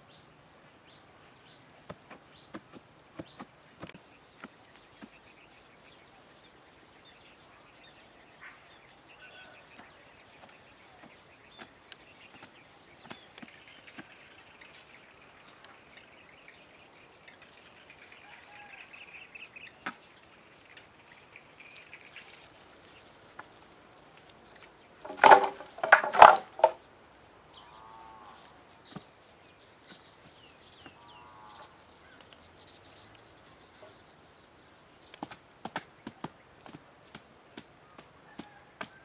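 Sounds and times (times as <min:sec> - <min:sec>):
bamboo poles clattering: 0:24.5 - 0:26.8.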